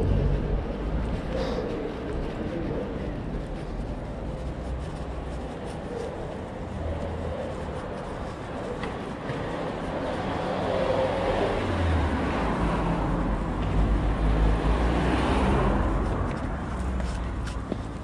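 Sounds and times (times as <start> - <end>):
vehicle passing close by: 0.0 - 3.6, 9.6 - 17.4.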